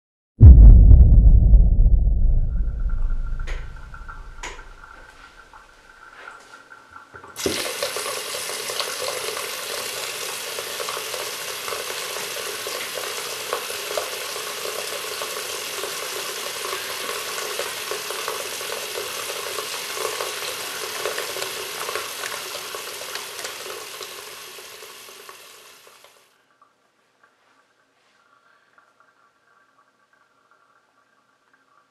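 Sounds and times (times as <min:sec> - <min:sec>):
deep boom: 0:00.4 - 0:04.7
water running from sink tap: 0:03.5 - 0:26.3.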